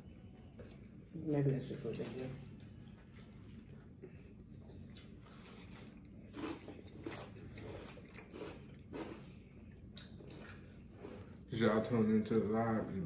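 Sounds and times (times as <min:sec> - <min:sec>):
steady low hum: 0:00.0 - 0:13.0
person chewing: 0:02.8 - 0:11.5.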